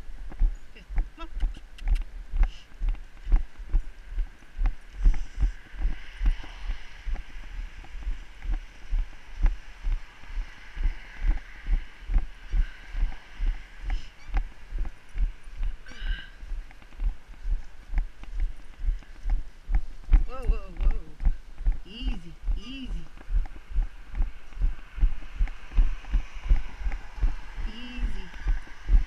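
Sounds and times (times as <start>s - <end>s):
low rhythmic thumps: 10.8s - 29.0s.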